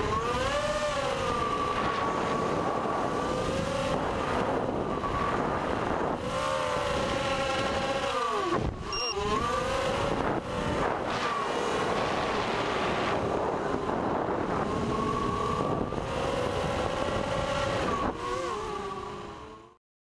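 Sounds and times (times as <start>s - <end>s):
wind rushing past microphone: 0.0s - 19.5s
drone motors buzzing whine: 0.0s - 19.8s.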